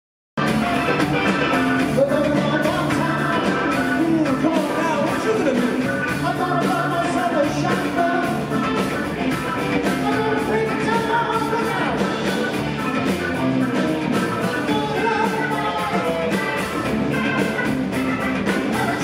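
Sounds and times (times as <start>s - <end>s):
drums: 0.4s - 19.0s
electric guitar: 0.4s - 19.0s
keyboards: 0.4s - 19.0s
man singing: 1.9s - 8.6s, 9.8s - 12.2s, 14.5s - 16.6s, 18.6s - 19.0s.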